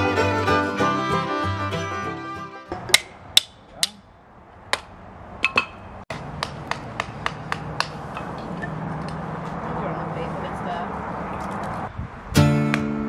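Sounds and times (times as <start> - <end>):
hatchet chopping wood: 2.7 - 4.0, 4.7 - 8.4.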